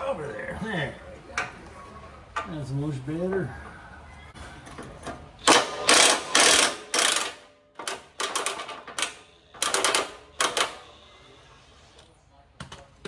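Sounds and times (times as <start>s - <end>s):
power tool rattling on bolts: 5.4s - 10.8s.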